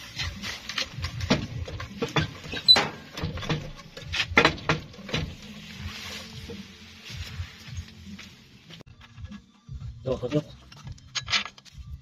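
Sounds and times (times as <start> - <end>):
hand tools clicking and knocking: 0.0 - 5.4.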